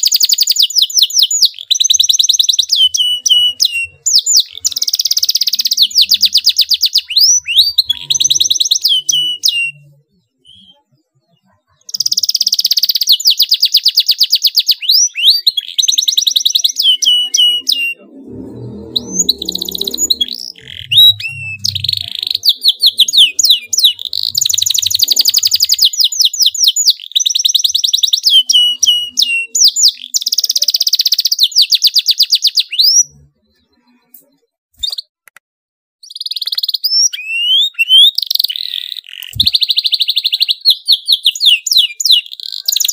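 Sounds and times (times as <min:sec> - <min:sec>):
canary singing: 0:00.0 - 0:35.2, 0:36.0 - 0:42.9
low rumble: 0:18.0 - 0:22.0.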